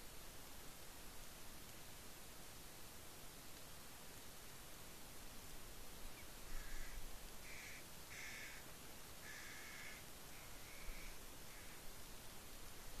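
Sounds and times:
rain hiss: 0.0 - 13.0
bird calls: 6.0 - 11.9.

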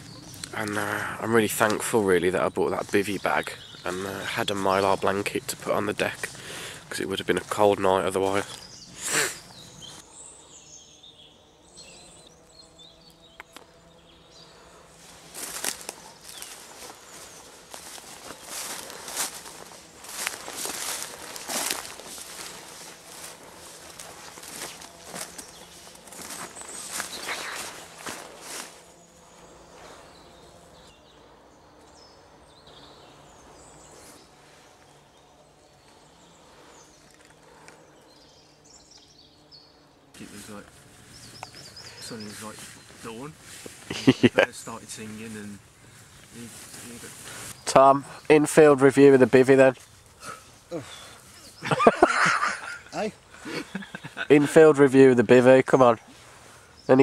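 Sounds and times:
bird chirps: 0.0 - 0.7, 2.5 - 5.6, 7.6 - 14.7, 15.4 - 48.5
rustle: 14.5 - 57.0
footsteps through dry leaves: 14.9 - 30.4, 40.2 - 47.6.

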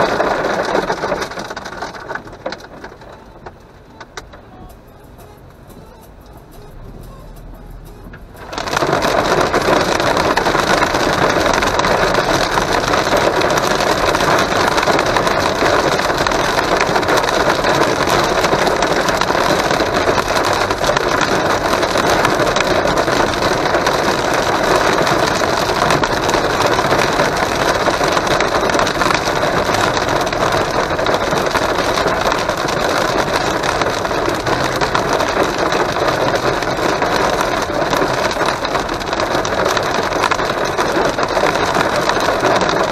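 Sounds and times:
hail and rain drumming on car roof: 0.0 - 7.0, 7.8 - 42.9.

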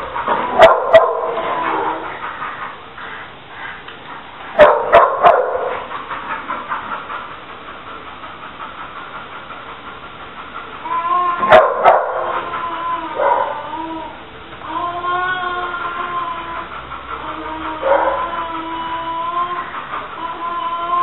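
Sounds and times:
dog whining: 0.0 - 2.8, 10.8 - 21.0
small dog barking: 4.6 - 5.7, 11.5 - 12.4.

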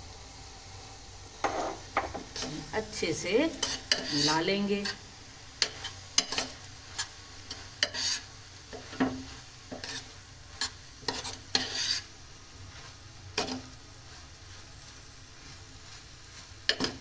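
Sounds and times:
spoon scraping metal pot: 3.6 - 5.0, 7.8 - 12.1.

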